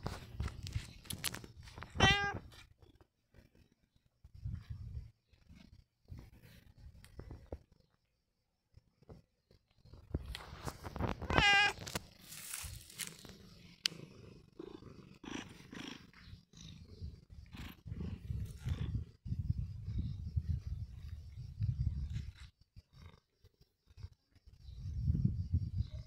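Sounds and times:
cat purring: 0:00.9 - 0:24.9
cat meowing: 0:01.9 - 0:02.4, 0:11.2 - 0:11.8
fur rustling on microphone: 0:10.4 - 0:13.2.

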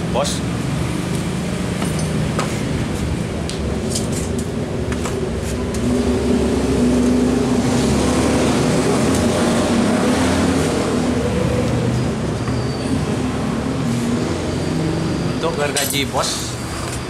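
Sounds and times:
steel tubes clinking: 0:15.5 - 0:17.0.

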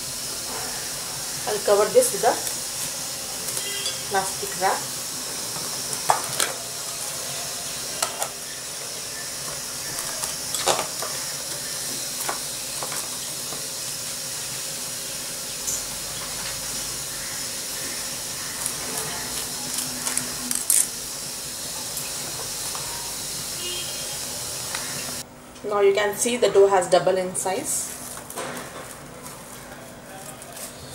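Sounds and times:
plastic cling wrap crinkling: 0:27.9 - 0:30.9.

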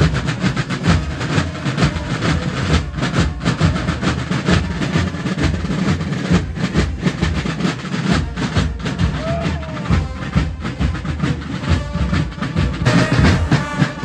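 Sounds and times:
band music: 0:00.0 - 0:14.0
crowd din of voices: 0:09.0 - 0:14.0.

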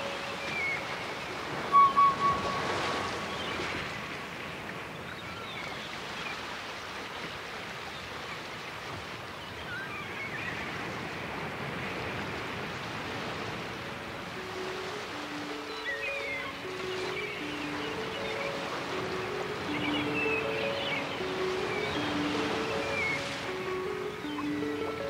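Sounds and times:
soft sustained music notes: 0:00.0 - 0:04.0, 0:14.4 - 0:25.0
ocean waves washing: 0:00.0 - 0:25.0
short high chirps: 0:01.7 - 0:03.4.

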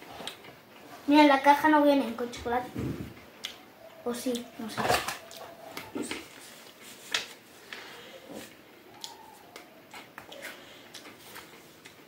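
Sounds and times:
chewing biscuit sticks: 0:07.7 - 0:12.0.

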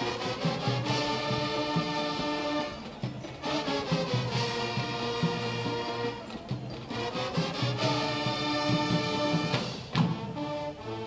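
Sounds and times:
brass sustained chords: 0:06.9 - 0:11.0.

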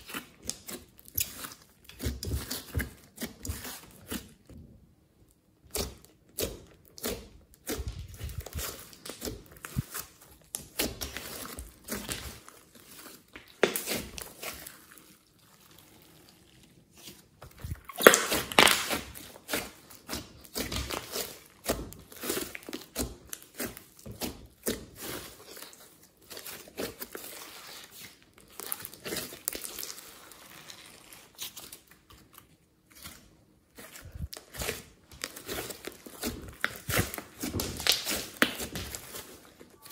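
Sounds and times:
slime squishing and popping: 0:05.5 - 0:15.0, 0:15.7 - 0:30.5, 0:33.7 - 0:39.9.

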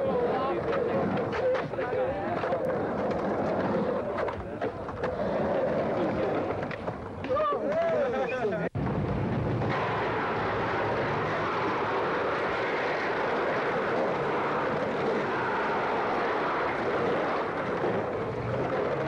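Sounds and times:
skateboard wheels rolling: 0:00.0 - 0:19.0.

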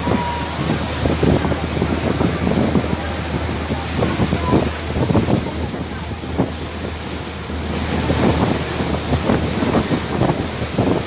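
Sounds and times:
boat engine humming: 0:00.0 - 0:11.0
water splashing in boat wake: 0:00.0 - 0:11.0
wind buffeting microphone: 0:00.0 - 0:11.0.

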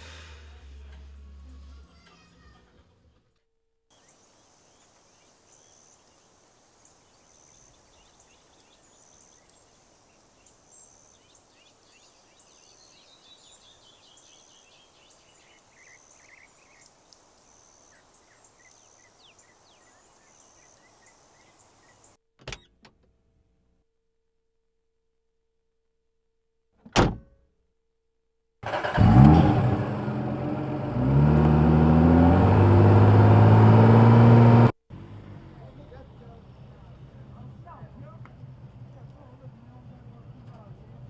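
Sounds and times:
steady low hiss: 0:03.9 - 0:22.2
small birds chirping: 0:03.9 - 0:22.7.

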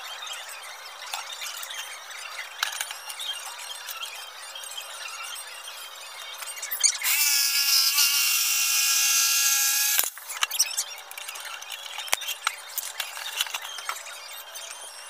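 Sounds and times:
electric jigsaw cutting wood: 0:07.0 - 0:10.2.

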